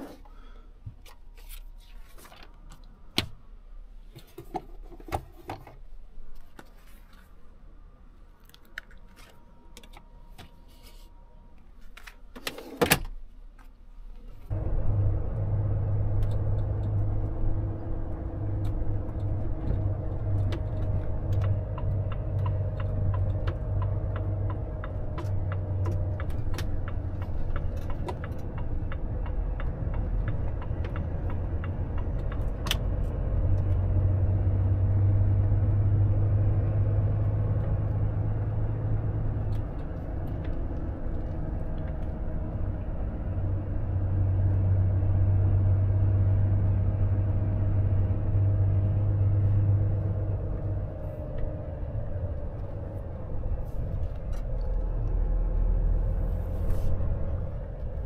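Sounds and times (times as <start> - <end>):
truck engine humming: 14.5 - 58.0.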